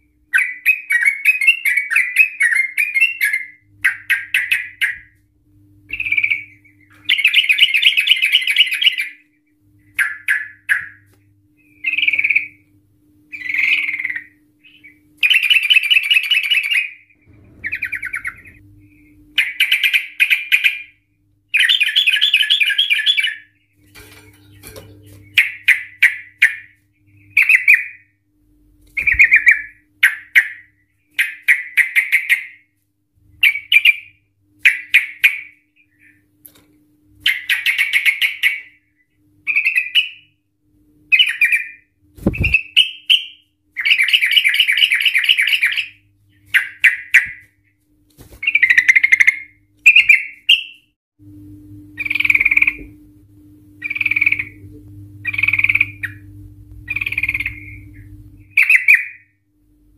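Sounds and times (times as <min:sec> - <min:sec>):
bulbul singing rattling phrases: 0:13.3 - 0:23.5, 0:53.8 - 0:59.2.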